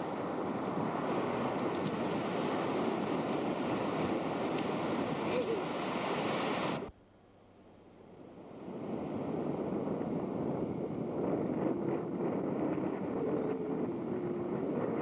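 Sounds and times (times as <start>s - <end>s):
surf: 0.0s - 6.9s
wind: 0.0s - 15.0s.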